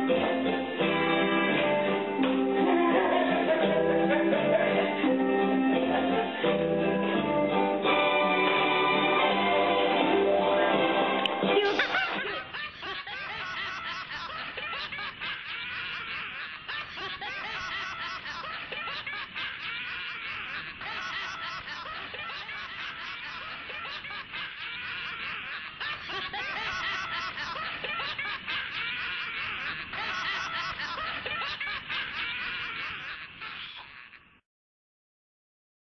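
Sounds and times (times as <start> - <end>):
high-pitched giggling laughter: 11.6 - 34.4.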